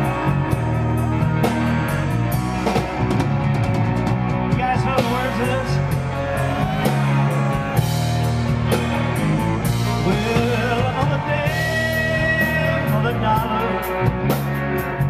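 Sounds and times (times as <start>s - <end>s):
live rock band playing: 0.0s - 15.0s
male singer: 4.5s - 7.8s, 9.9s - 14.3s.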